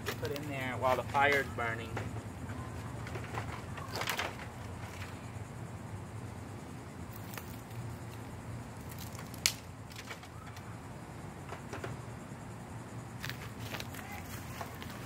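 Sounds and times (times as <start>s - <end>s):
faint outdoor background: 0.0s - 15.0s
dry wood cracking: 7.1s - 8.2s, 8.8s - 10.6s
dry sticks clicking: 8.9s - 10.2s.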